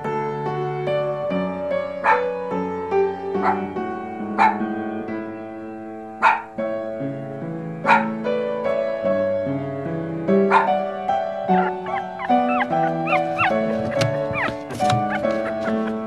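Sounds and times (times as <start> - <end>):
background music with piano notes: 0.0 - 16.0
dog barking: 2.0 - 2.4, 3.4 - 4.7, 6.2 - 6.6, 7.8 - 8.2, 10.4 - 16.0.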